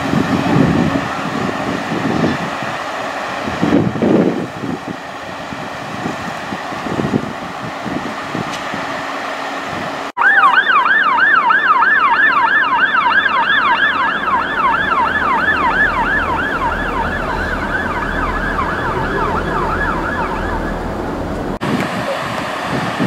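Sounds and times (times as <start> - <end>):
diesel train running: 0.0 - 23.0
police siren yelping: 10.2 - 22.2.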